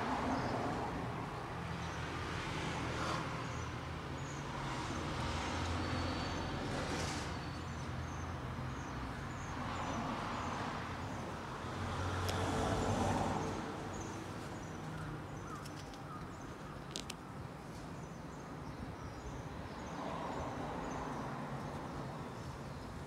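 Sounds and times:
traffic rumble: 0.0 - 23.0
small clicks: 16.9 - 17.2.

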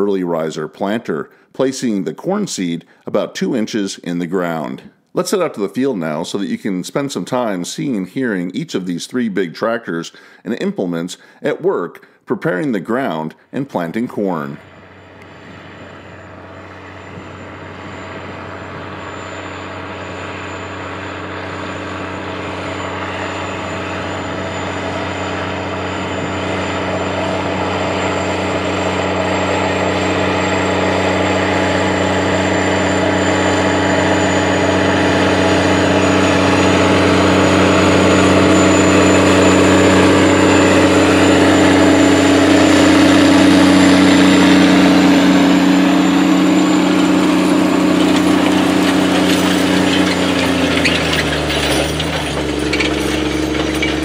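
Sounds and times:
tractor diesel engine under load: 13.0 - 54.0.

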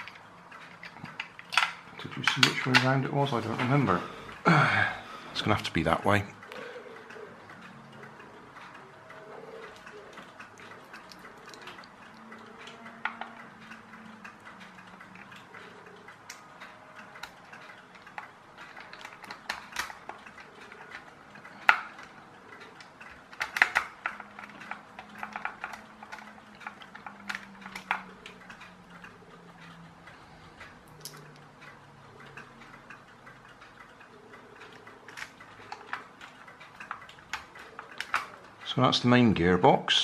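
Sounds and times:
screwdriver and plastic parts clicking: 23.3 - 28.1, 36.8 - 38.4.

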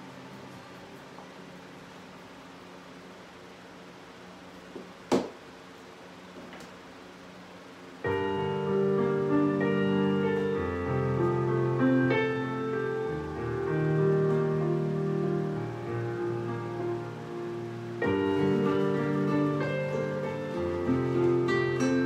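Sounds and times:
faint room hum: 0.0 - 22.0
piano music: 8.0 - 22.0.

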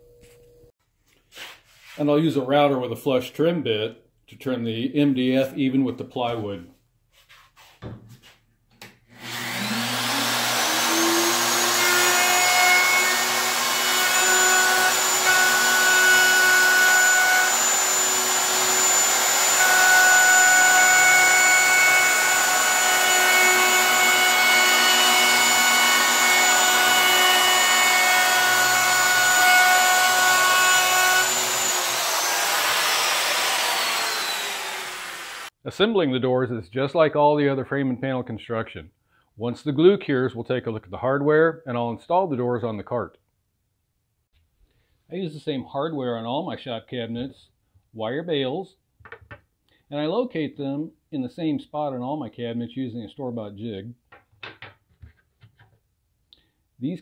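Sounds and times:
router motor whine: 9.2 - 35.5.

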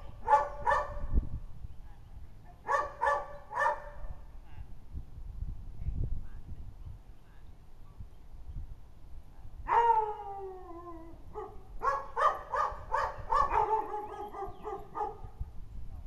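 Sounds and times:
dog barking: 0.2 - 1.1, 2.6 - 4.1, 11.3 - 15.4.

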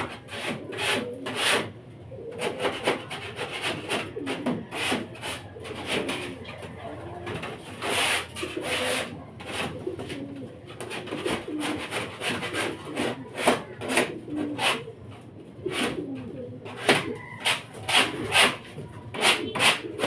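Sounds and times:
rasping scrapes: 0.0 - 1.7, 2.3 - 6.4, 7.6 - 10.0, 10.8 - 14.9, 16.7 - 20.0
pigeons cooing: 0.0 - 20.0.

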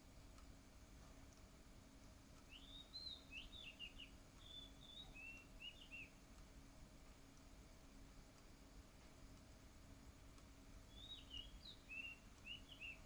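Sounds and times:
low background hum: 0.0 - 13.0
bird singing whistled notes: 2.5 - 6.2, 10.9 - 13.0.

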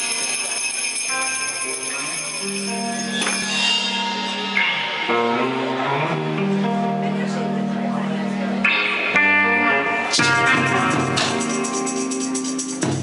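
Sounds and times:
electric guitar chords ringing: 0.0 - 13.0
live band music: 8.6 - 13.0.

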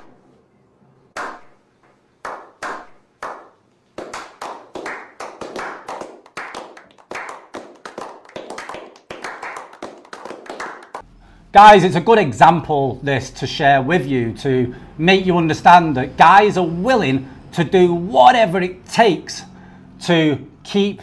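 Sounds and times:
people clapping: 2.2 - 11.0.

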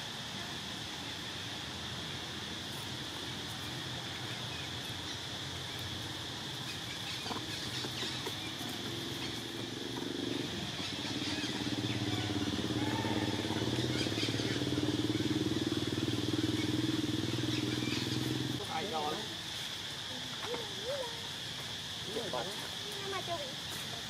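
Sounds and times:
vehicle engine running: 7.2 - 18.6.

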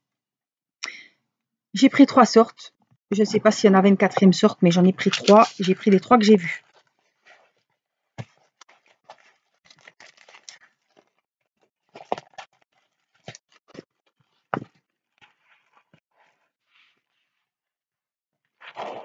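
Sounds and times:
canvas and paper rustling: 4.2 - 17.6.

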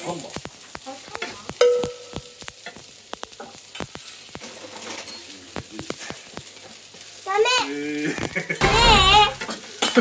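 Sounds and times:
food sizzling: 0.0 - 10.0.

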